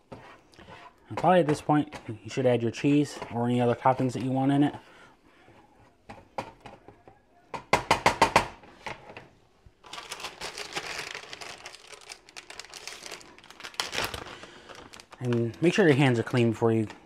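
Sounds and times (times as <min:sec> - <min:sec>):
plastic bag crinkling: 0:09.7 - 0:17.0.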